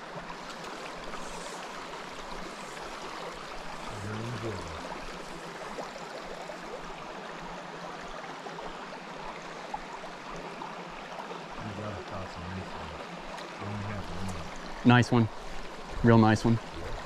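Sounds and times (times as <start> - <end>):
water babbling over stones: 0.0 - 17.0
low vocal sound: 3.9 - 4.9, 13.6 - 14.5.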